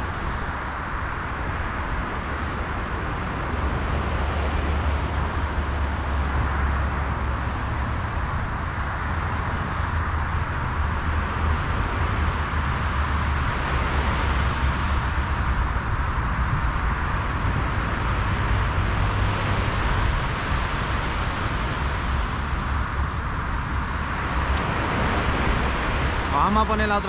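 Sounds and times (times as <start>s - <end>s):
wind buffeting microphone: 0.0s - 27.0s
surf breaking on beach: 18.1s - 27.0s.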